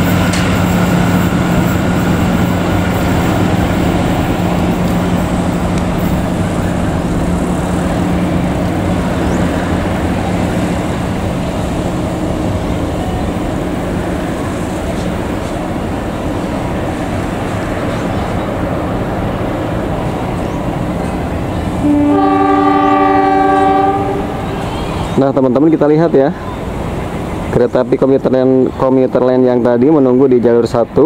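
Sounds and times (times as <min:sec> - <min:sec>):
train carriages rumbling on rails: 0:00.0 - 0:31.0
train horn: 0:21.8 - 0:24.9.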